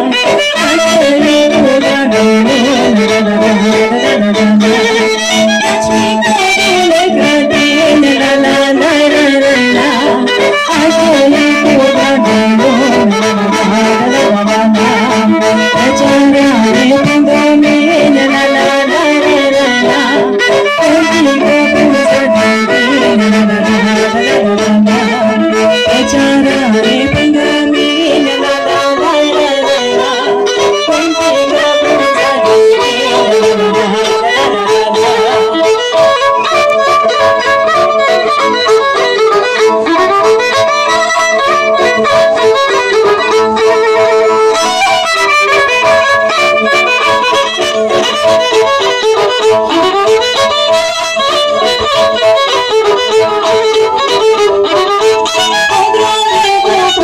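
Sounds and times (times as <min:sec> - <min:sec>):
folk music with fiddle and accordion: 0:00.0 - 0:57.0.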